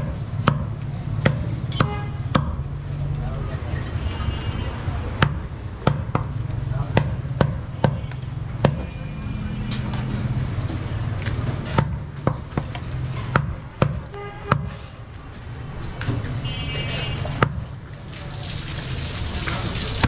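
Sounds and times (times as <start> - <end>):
cleaver chopping onto wooden block: 0.0 - 2.6, 7.0 - 8.9.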